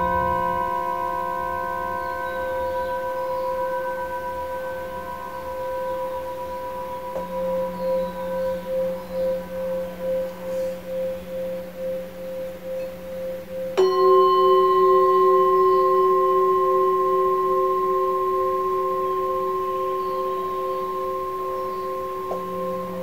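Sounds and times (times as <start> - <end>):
singing bowl pulsing tone: 0.0 - 23.0
singing bowl struck with mallet: 0.0 - 23.0.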